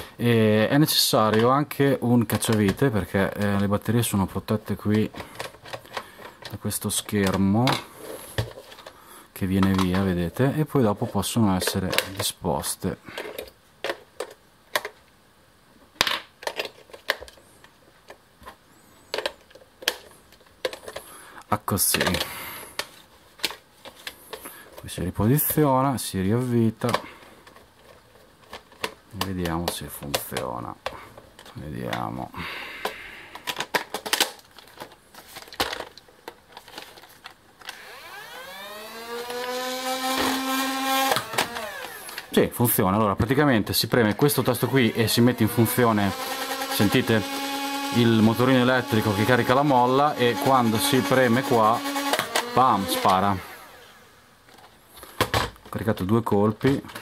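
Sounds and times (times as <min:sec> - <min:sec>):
batteries clicking into compartment: 0:33.3 - 0:37.8
flywheel motors whining: 0:37.7 - 0:42.3, 0:44.6 - 0:54.1.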